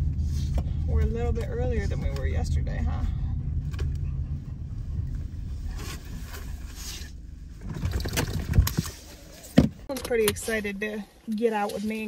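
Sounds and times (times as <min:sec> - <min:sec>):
car engine and tyre rumble: 0:00.0 - 0:12.0
knocks and thuds: 0:09.5 - 0:09.8.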